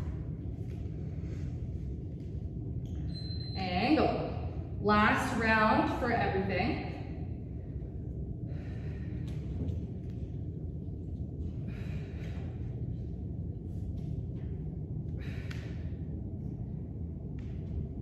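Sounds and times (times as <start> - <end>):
steady low hum: 0.0 - 18.0
person breathing hard: 8.3 - 9.7, 11.6 - 12.9.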